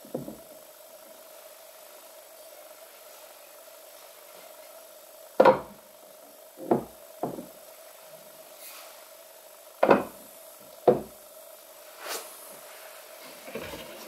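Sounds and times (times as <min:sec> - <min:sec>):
faint steady hum: 0:00.0 - 0:14.0
chisels knocking on wood: 0:10.9 - 0:11.1.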